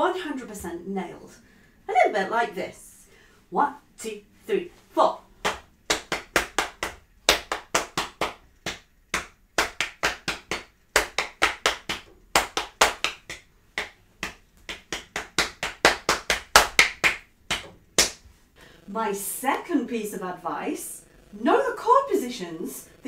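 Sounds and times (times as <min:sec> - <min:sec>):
palms slapping on thighs: 0:05.4 - 0:18.9.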